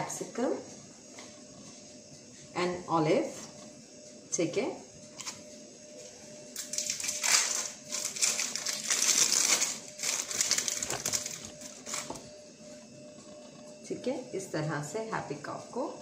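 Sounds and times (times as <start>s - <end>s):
crinkling handling noise: 6.6s - 13.8s.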